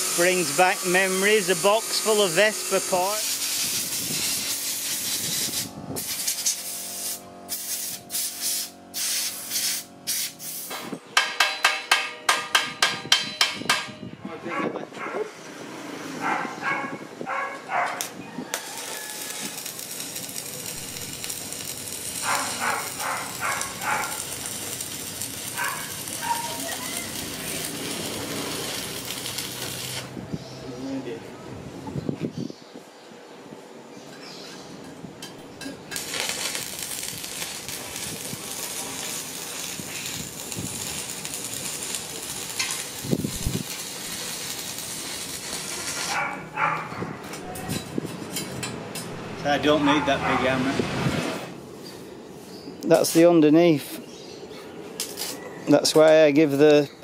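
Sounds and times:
welding arc crackling and hissing: 0.0 - 13.9, 18.0 - 30.2, 35.4 - 48.3, 52.9 - 53.6, 55.0 - 56.7
sharp knocks: 11.2 - 14.0.

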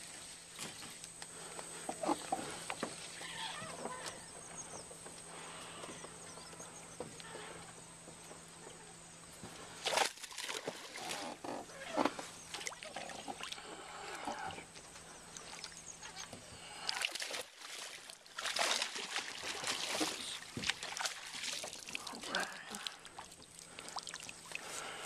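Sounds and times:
water sloshing: 9.4 - 25.0
fish splashing at water surface: 9.8 - 11.2, 16.7 - 25.0.

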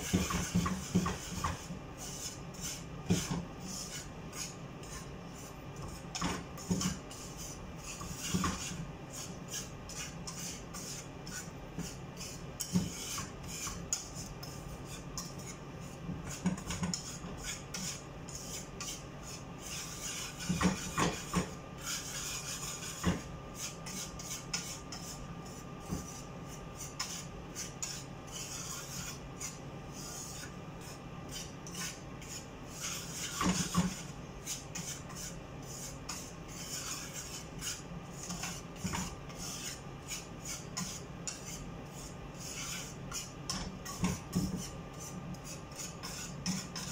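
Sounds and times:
whisk knocking against pan: 0.0 - 5.0, 5.8 - 11.1, 11.7 - 19.0, 19.7 - 25.1, 25.8 - 26.2, 30.3 - 46.9
whisk scraping in a pan: 0.0 - 46.9.

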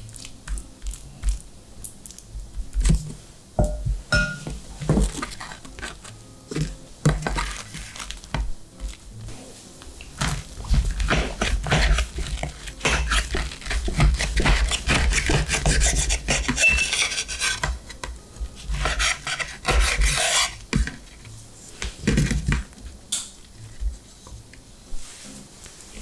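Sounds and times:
knife sawing through toasted sandwich: 11.2 - 17.7, 18.7 - 20.6.

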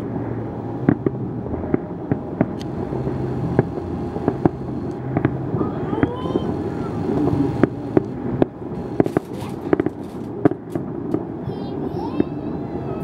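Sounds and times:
city background noise: 0.0 - 13.0
fireworks bangs and pops: 0.8 - 2.7, 3.5 - 6.2, 7.1 - 11.3.

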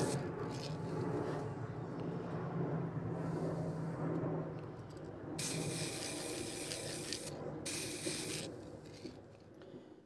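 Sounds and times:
steady low hum: 0.0 - 10.0
aerosol spray can hissing: 5.4 - 8.5.

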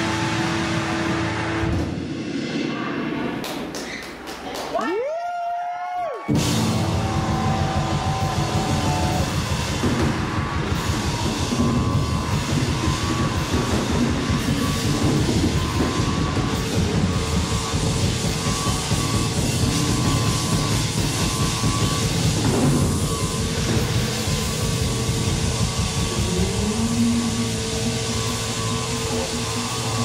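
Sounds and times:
live rock band playing: 0.0 - 3.3, 6.3 - 30.0
steady held tones: 6.3 - 30.0.

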